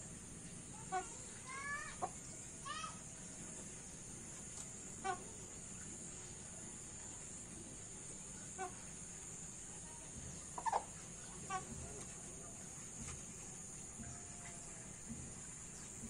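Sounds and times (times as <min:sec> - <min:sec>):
insects chirring: 0:00.0 - 0:16.0
fowl clucking: 0:01.9 - 0:02.2, 0:10.4 - 0:12.1.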